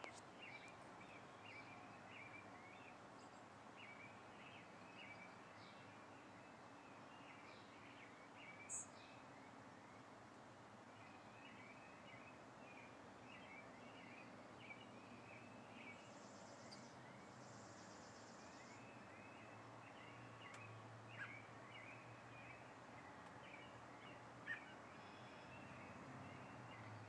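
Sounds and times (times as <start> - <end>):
songbirds chirping: 0.0 - 27.0
soft clicks: 20.4 - 20.7.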